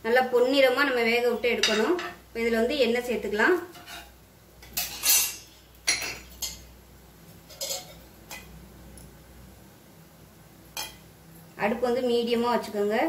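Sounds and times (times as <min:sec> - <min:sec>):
metal spoon scraping iron griddle: 0:03.7 - 0:04.1, 0:04.8 - 0:06.6, 0:07.4 - 0:08.5.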